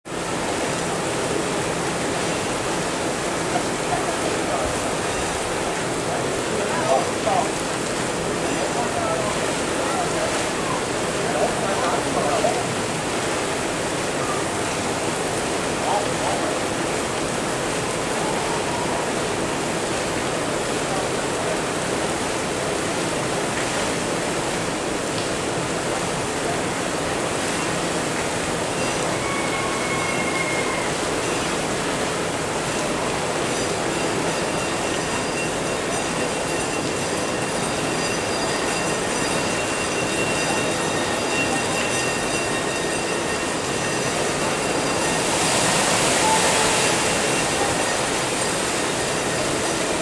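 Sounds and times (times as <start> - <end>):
faint high steady tones: 33.6 - 50.0.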